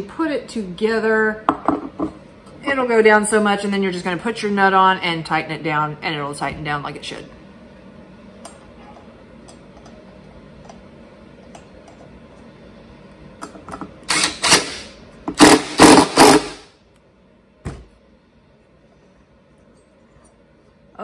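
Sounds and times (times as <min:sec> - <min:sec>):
impact driver hammering: 0:14.1 - 0:16.6.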